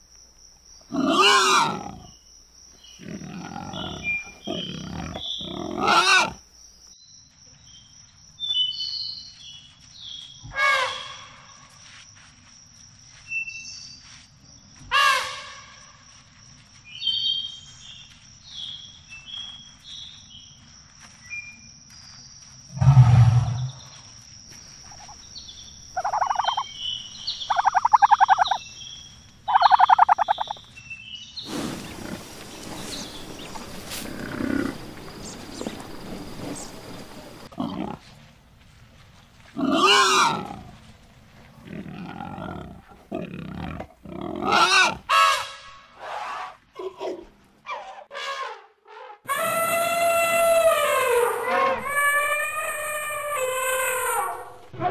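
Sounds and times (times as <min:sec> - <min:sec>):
insects: 0:00.0 - 0:46.0
birds chirping: 0:02.8 - 0:06.2, 0:24.9 - 0:37.5
animal deep grunt: 0:03.0 - 0:06.3, 0:22.8 - 0:23.8, 0:34.0 - 0:35.1, 0:41.6 - 0:45.0
animal throaty roaring calls: 0:22.7 - 0:23.9
rough noise: 0:22.7 - 0:23.9.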